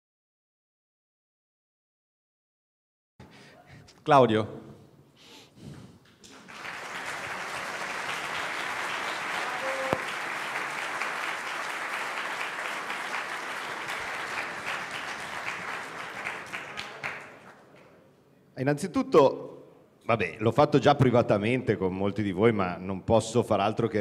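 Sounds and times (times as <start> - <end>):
audience applauding: 6.2 - 17.7.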